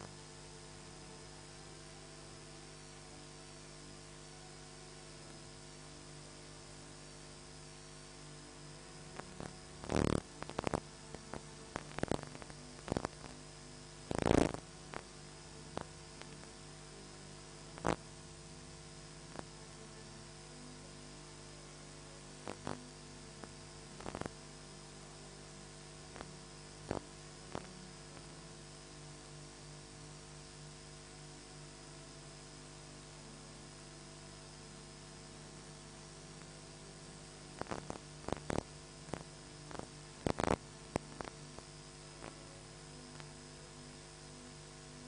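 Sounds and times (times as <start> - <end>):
electrical mains hum: 0.0 - 45.0.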